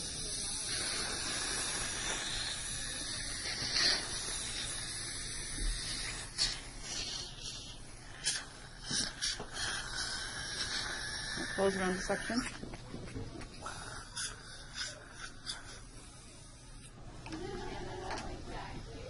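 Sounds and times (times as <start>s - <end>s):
water syringe spraying hiss: 0.0s - 12.6s.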